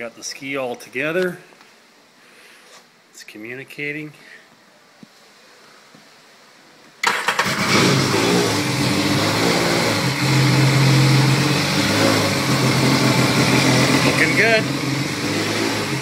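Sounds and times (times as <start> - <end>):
watercraft engine starting and idling: 7.0 - 14.6.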